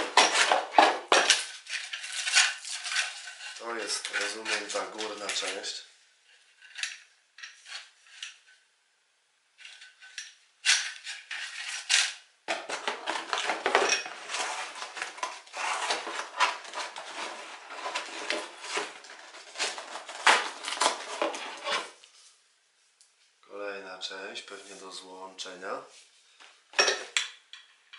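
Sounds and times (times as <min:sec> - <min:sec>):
metal detector parts clattering: 0:00.0 - 0:05.6, 0:09.6 - 0:21.2
cardboard box rustling: 0:12.6 - 0:22.0.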